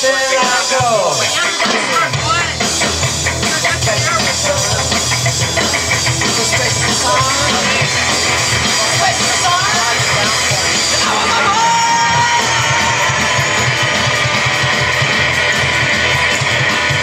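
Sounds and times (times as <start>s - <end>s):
live band playing: 0.0s - 17.0s
sliding guitar or vocal notes: 3.4s - 15.2s.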